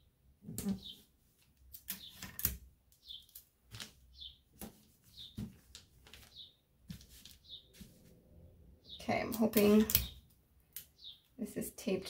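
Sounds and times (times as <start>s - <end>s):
bird chirping: 0.0s - 1.1s, 1.8s - 5.6s, 6.2s - 6.7s, 7.4s - 7.8s, 8.8s - 11.4s
hands rustling paper: 3.2s - 8.1s.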